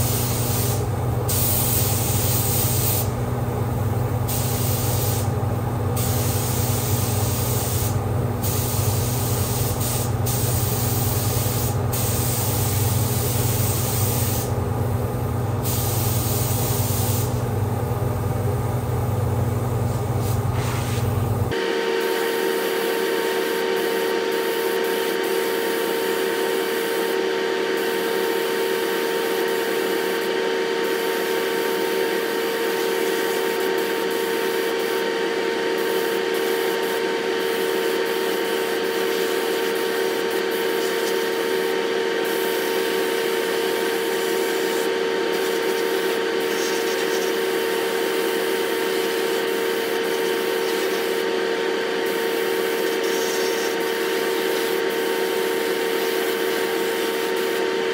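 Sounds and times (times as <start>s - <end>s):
paint spray gun hissing: 0.0s - 3.2s, 4.2s - 5.4s, 6.0s - 14.6s, 15.6s - 17.4s, 19.9s - 21.2s, 32.8s - 35.0s, 35.8s - 37.7s, 38.4s - 51.2s, 52.0s - 57.7s
spray booth fan drone: 0.0s - 57.9s.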